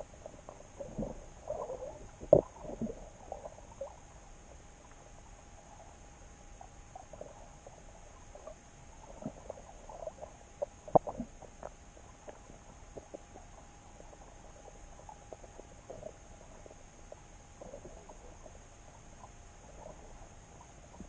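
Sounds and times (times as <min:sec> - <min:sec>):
faint underwater clicks and pops: 0:00.0 - 0:21.0
steady hum: 0:00.0 - 0:21.0.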